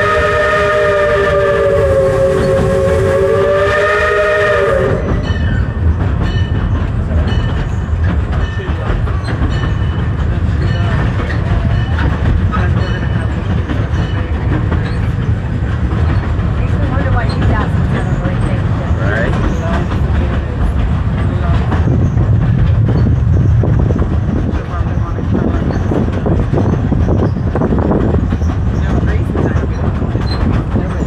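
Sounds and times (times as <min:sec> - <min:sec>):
steam locomotive chime whistle: 0:00.0 - 0:05.7
rail clicks: 0:00.0 - 0:31.0
train rumbling on rails: 0:00.0 - 0:31.0.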